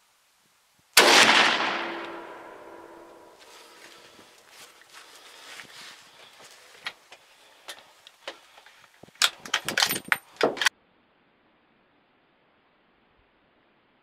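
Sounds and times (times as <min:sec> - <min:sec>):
gear clicking and rattling: 0:07.7 - 0:10.7.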